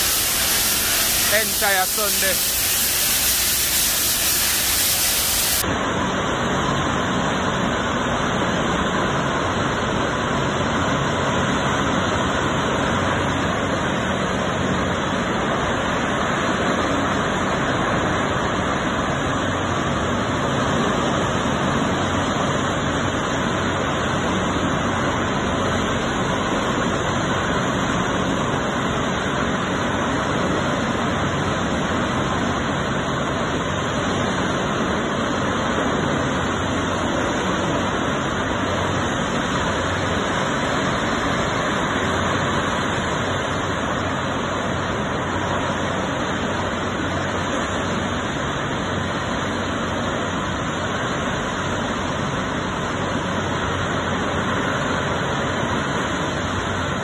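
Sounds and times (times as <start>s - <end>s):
loud rushing noise: 0.0s - 5.6s.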